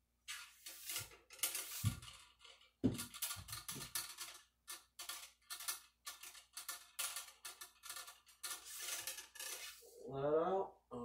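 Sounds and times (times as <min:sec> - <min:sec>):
cleaning rod scraping in barrel: 0:00.3 - 0:02.4, 0:07.4 - 0:10.0.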